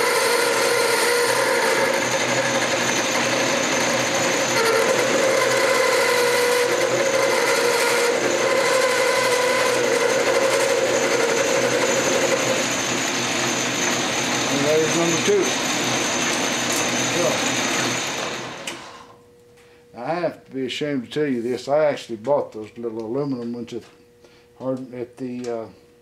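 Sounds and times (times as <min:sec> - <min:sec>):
metal lathe running: 0:00.0 - 0:19.0.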